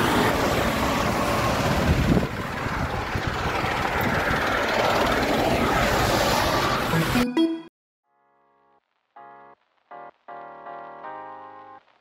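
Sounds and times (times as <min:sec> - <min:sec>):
traffic roar: 0:00.0 - 0:07.2.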